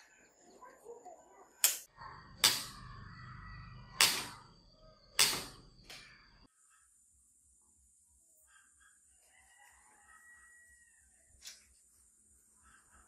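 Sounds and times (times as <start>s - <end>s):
sharp clicks and knocks: 5.2s - 6.1s.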